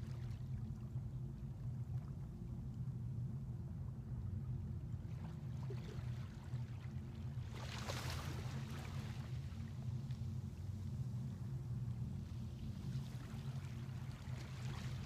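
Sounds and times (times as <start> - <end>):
steady low hum: 0.0 - 15.0
waves lapping on beach: 7.4 - 10.0.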